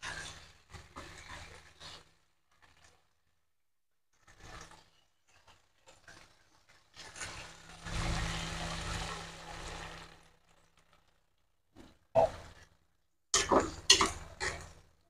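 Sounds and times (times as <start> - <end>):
faint crackling from a pan: 0.0 - 3.3.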